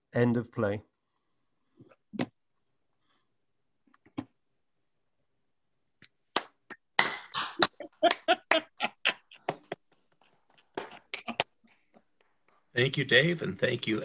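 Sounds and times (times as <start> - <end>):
people clapping: 6.3 - 8.8, 9.4 - 12.6.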